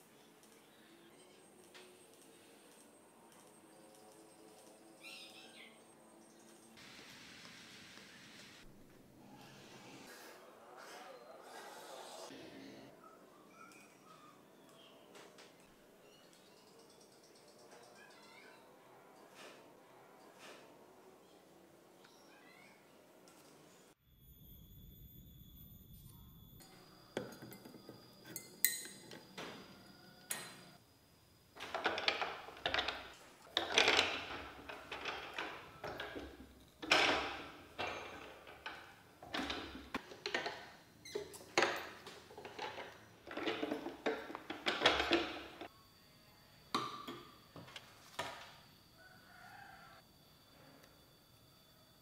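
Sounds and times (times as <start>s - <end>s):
rolling mill gears clanking: 31.6s - 45.7s.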